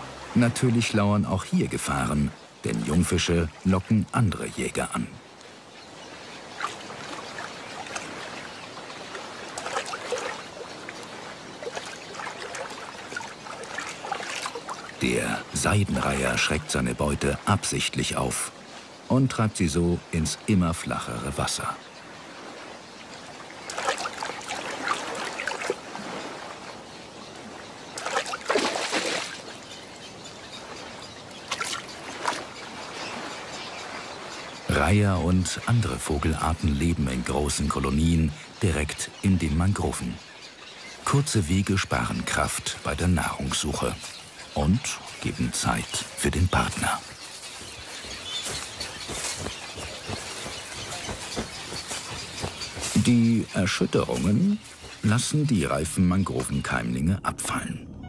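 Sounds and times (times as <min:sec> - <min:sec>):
soft wash of water: 0:00.0 - 0:55.3
shallow water splashing: 0:04.7 - 0:39.2, 0:39.9 - 0:55.3.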